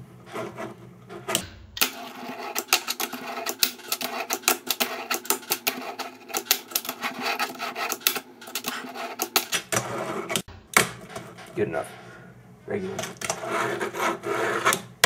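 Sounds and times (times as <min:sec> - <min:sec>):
small wheels rolling on table: 0:01.8 - 0:10.5.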